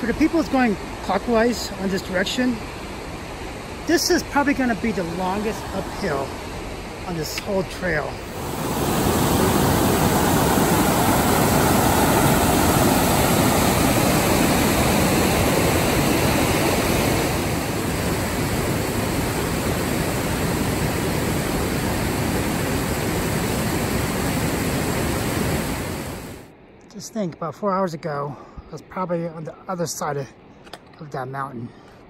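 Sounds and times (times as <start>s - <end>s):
river rushing over boulders: 0.0s - 26.5s.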